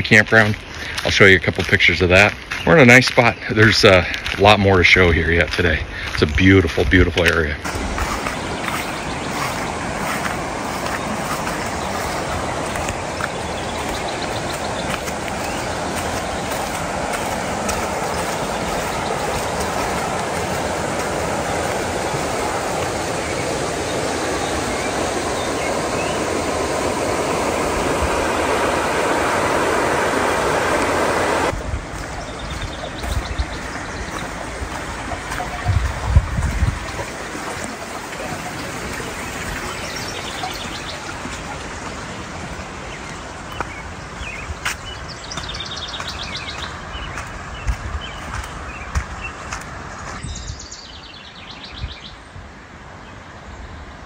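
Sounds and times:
water rushing over rocks: 0:07.2 - 0:50.2.

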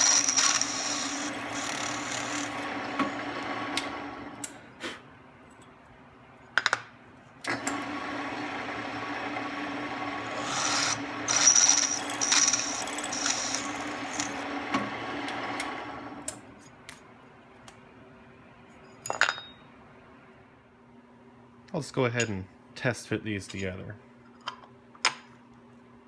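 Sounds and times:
drill bit cutting aluminum: 0:00.0 - 0:03.3, 0:10.2 - 0:14.4
drill press motor hum: 0:00.0 - 0:04.6, 0:07.5 - 0:16.4.

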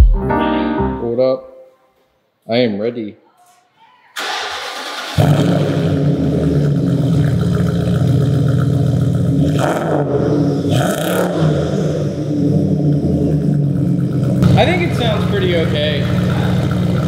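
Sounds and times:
car engine idling loudly: 0:05.2 - 0:10.5, 0:11.8 - 0:17.0.

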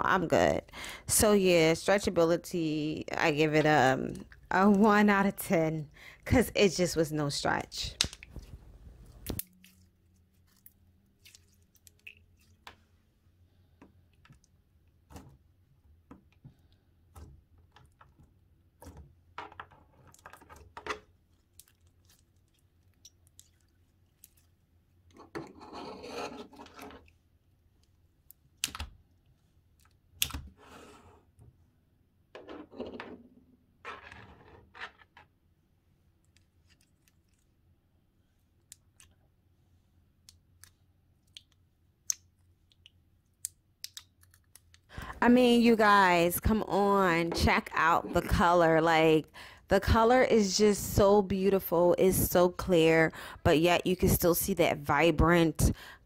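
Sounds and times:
slime squishing: 0:08.1 - 0:12.7.

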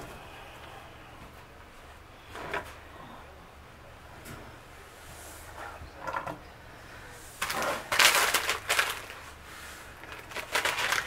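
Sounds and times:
plastic bag crinkling: 0:07.4 - 0:11.0.

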